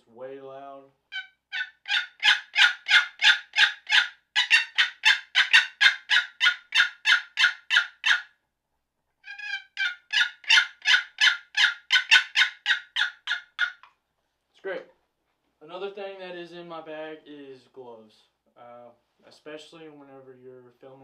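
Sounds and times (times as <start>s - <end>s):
turkey call yelps: 1.1s - 8.3s, 9.2s - 13.9s.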